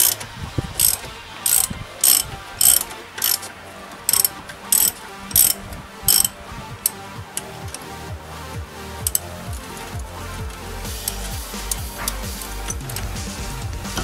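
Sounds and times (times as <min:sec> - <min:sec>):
socket ratchet clicking: 0:00.0 - 0:00.2, 0:00.8 - 0:03.5, 0:04.1 - 0:07.8, 0:09.0 - 0:09.2.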